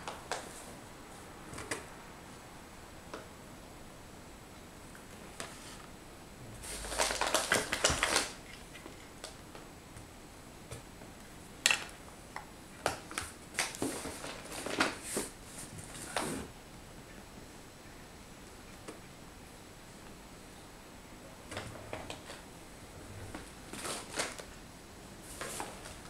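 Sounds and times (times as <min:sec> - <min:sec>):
packaging rustling and crinkling: 0:06.6 - 0:09.4, 0:13.2 - 0:16.4, 0:23.3 - 0:24.5.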